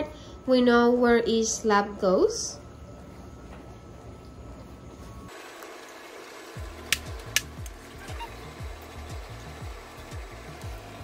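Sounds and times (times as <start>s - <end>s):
faint steady background noise: 0.0s - 7.8s.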